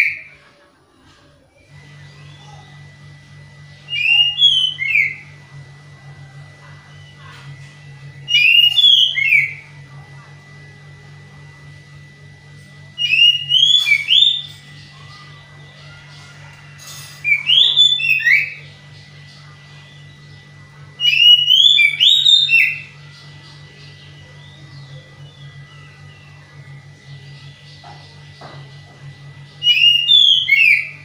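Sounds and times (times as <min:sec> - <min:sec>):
faint steady hum: 0:00.0 - 0:31.0
bird singing whistled notes: 0:21.0 - 0:22.9, 0:29.6 - 0:31.0.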